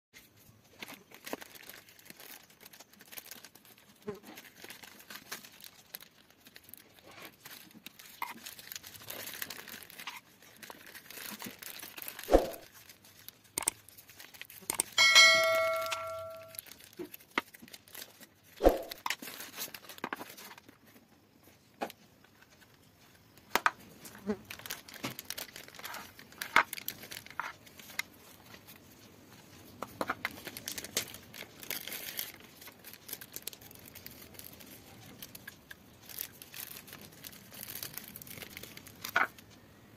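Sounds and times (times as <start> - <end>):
plastic crinkling and tearing: 0.2 - 15.0, 16.4 - 39.6
short metallic ring: 14.8 - 16.6.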